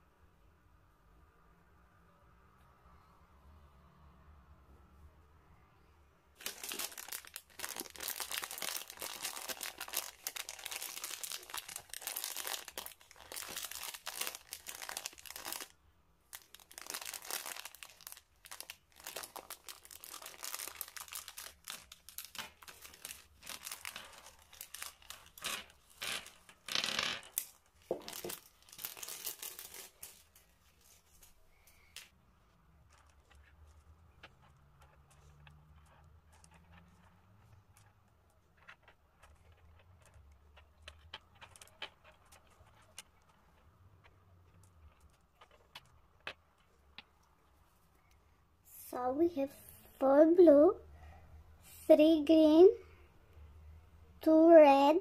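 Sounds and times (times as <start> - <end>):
plastic wrapper crackling and tearing: 6.4 - 30.9, 44.6 - 47.0.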